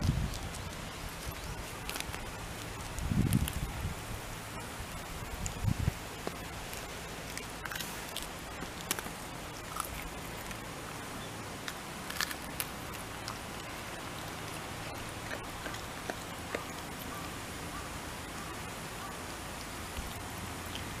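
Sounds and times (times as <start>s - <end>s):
dog chewing leafy greens: 0.0s - 3.7s, 5.3s - 10.6s, 11.6s - 16.9s
background hiss: 0.0s - 21.0s.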